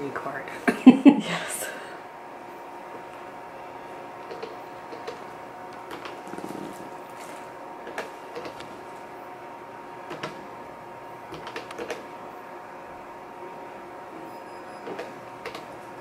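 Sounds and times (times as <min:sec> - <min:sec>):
machine humming: 0:00.0 - 0:16.0
sharp control clicks: 0:11.3 - 0:12.0.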